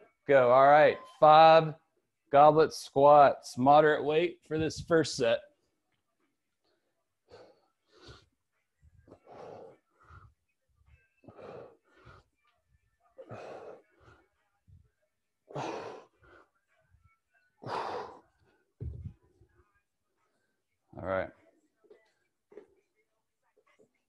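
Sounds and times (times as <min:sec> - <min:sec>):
man breathing hard: 0:11.2 - 0:12.4, 0:17.6 - 0:19.1.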